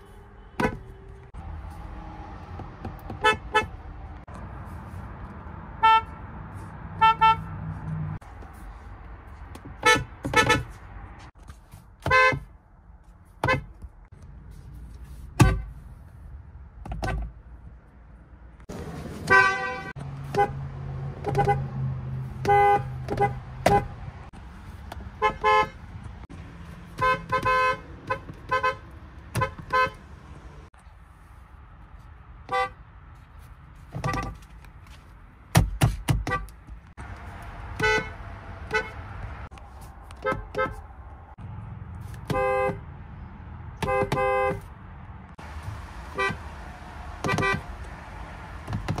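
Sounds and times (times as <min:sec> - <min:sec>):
car horn honks: 0:00.0 - 0:01.2, 0:03.1 - 0:03.8, 0:05.8 - 0:06.2, 0:07.0 - 0:07.6, 0:09.8 - 0:10.8, 0:12.0 - 0:12.5, 0:19.2 - 0:20.6, 0:21.2 - 0:21.7, 0:22.4 - 0:24.0, 0:25.2 - 0:25.8, 0:27.0 - 0:30.0, 0:32.4 - 0:32.8, 0:37.7 - 0:39.1, 0:40.2 - 0:40.8, 0:42.2 - 0:42.8, 0:43.8 - 0:44.7, 0:46.1 - 0:46.5, 0:47.2 - 0:47.7.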